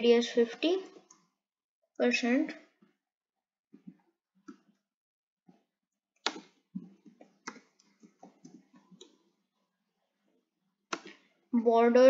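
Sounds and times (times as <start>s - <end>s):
computer keyboard clicks: 6.2s - 6.5s.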